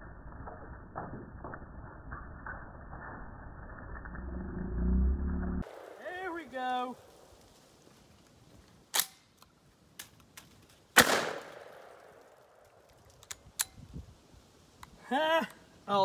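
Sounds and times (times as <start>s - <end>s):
shotgun shot with echo: 11.0s - 12.0s.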